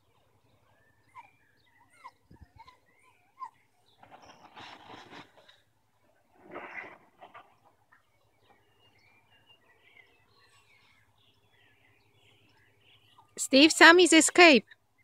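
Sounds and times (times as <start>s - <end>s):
faint small bird chirps: 0.0s - 5.2s, 7.9s - 13.4s.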